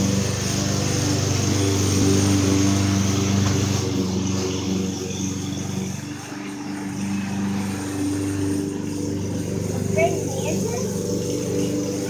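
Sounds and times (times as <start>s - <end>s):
low-pitched motor drone: 0.0s - 12.0s.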